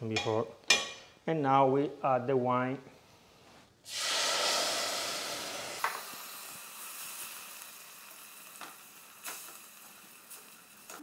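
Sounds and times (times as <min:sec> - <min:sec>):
wine sizzling in a pot: 0:03.8 - 0:11.0.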